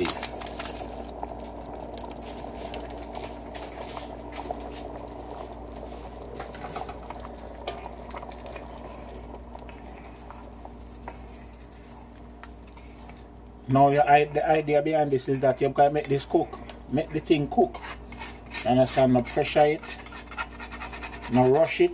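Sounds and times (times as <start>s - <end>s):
broth bubbling in a pot: 0.0s - 14.8s
spoon stirring in a pot: 17.5s - 21.9s.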